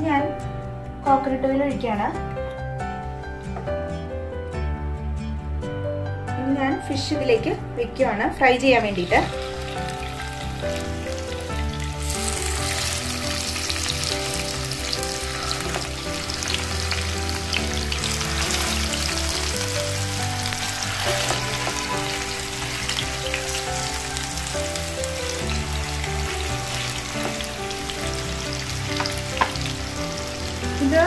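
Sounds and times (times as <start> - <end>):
fish sizzling in oil: 8.7 - 31.0.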